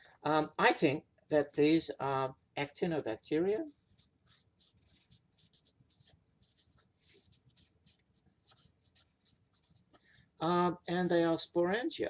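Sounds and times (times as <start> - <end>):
marker writing on whiteboard: 3.6 - 11.9.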